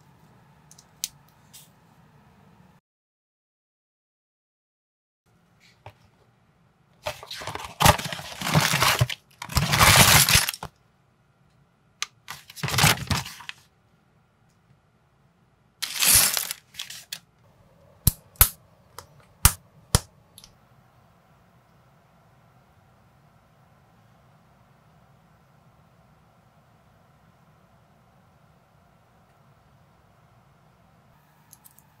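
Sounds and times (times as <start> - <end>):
paper rustling: 7.0 - 10.7, 12.2 - 13.6, 15.8 - 17.2.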